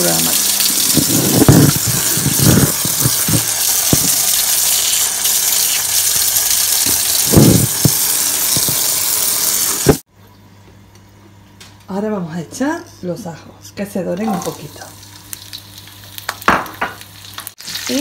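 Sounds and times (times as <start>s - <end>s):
water pouring from hose: 0.0s - 10.0s, 17.5s - 18.0s.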